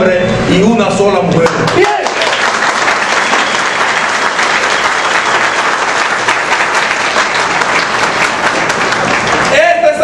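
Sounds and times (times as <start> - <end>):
crowd applauding: 1.4 - 10.0.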